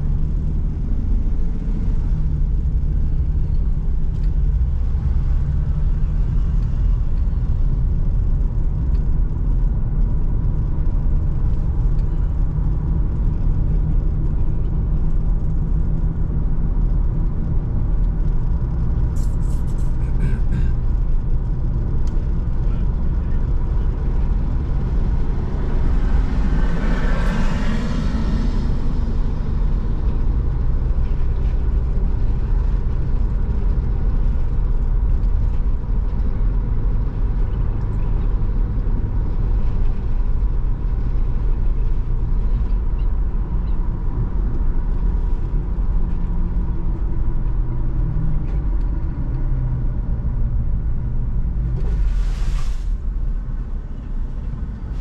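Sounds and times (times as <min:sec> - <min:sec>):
car engine and tyre rumble: 0:00.0 - 0:55.0
vehicle passing: 0:24.3 - 0:30.1.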